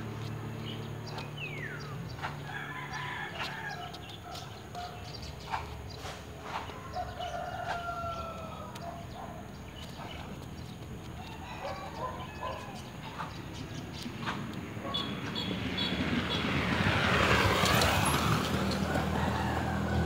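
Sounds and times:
rooster crowing: 2.4 - 4.1, 6.8 - 8.8, 11.2 - 12.9, 18.8 - 20.0.

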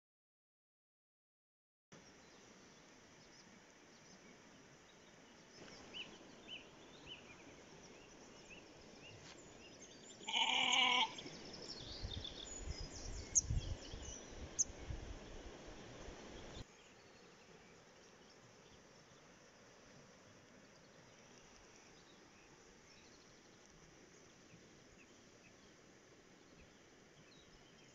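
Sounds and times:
sheep bleating: 10.2 - 11.2.

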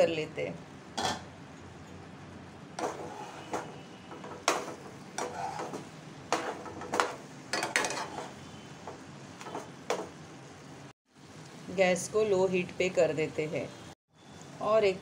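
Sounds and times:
spoon scraping and knocking pan: 2.8 - 10.2.

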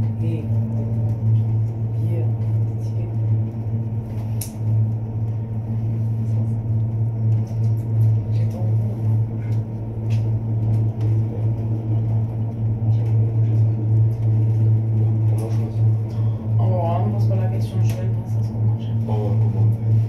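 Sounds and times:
cable car cabin hum: 0.0 - 20.0.

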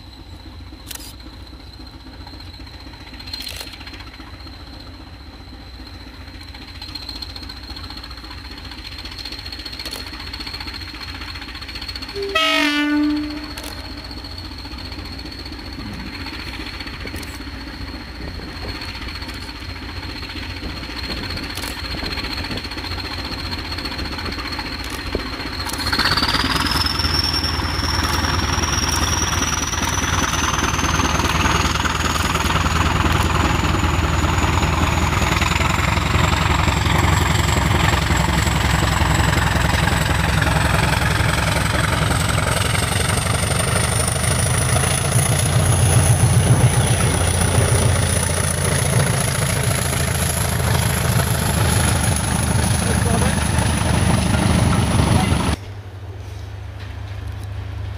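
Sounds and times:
diesel locomotive engine rumble: 0.0 - 57.9
train wheels running past: 0.0 - 57.9
turbocharger whistle rising: 12.1 - 14.3.

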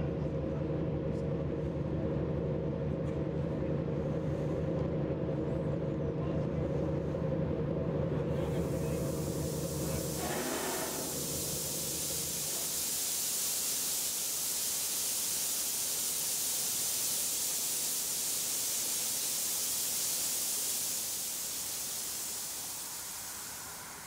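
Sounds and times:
water spray hissing: 8.6 - 24.0.

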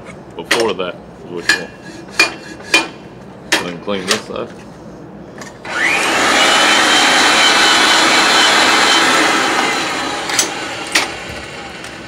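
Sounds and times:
pipe threader motor whining: 5.6 - 12.0.

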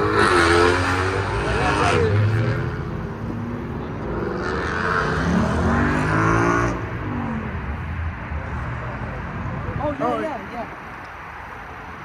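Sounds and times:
car engine revving: 0.0 - 7.5.

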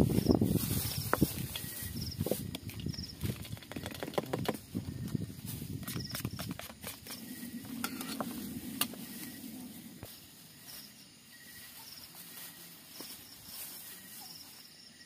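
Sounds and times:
plastic bag rustling: 0.0 - 11.0
wooden utensil scraping steel bowl: 5.9 - 9.4.

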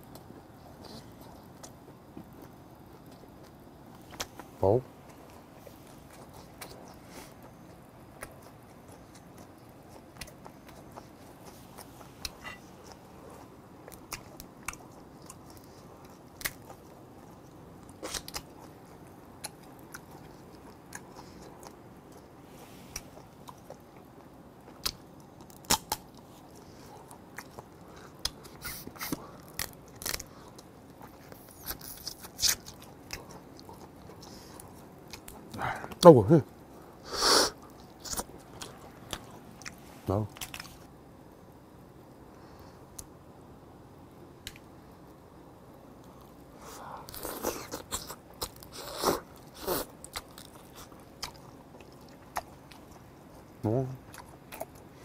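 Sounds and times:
person chewing: 0.1 - 36.0, 36.6 - 40.9, 46.0 - 55.0
crab shell cracking: 24.8 - 26.1, 29.0 - 30.6.

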